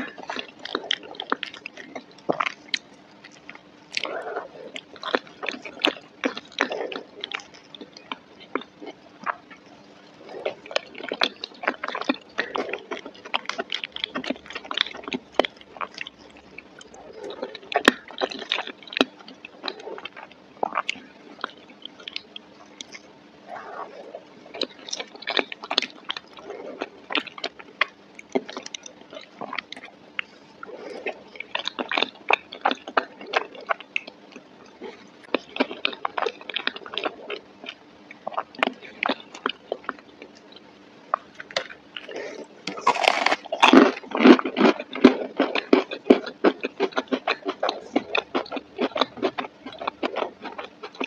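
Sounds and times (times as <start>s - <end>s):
wet chewing and mouth smacking: 0.0s - 51.0s.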